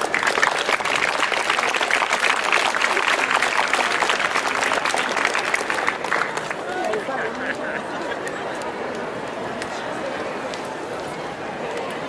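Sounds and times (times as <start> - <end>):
audience clapping: 0.0 - 9.0.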